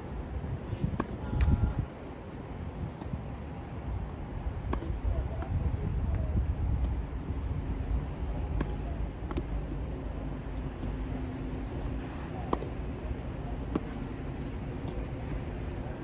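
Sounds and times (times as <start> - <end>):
wind rumble on microphone: 0.0 - 16.0
tennis ball pops: 4.7 - 5.0.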